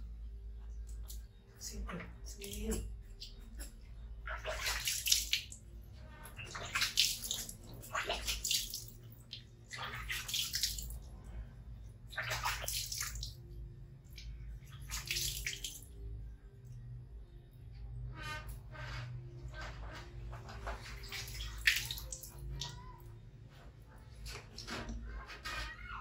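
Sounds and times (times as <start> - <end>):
water splashing and pouring: 3.2 - 16.0, 20.5 - 22.7.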